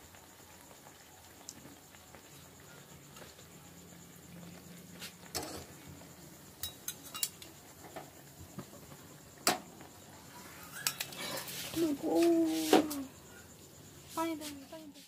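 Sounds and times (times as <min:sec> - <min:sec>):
food sizzling in oil: 0:00.0 - 0:15.0
metal skimmer clinking on pan: 0:06.6 - 0:07.4.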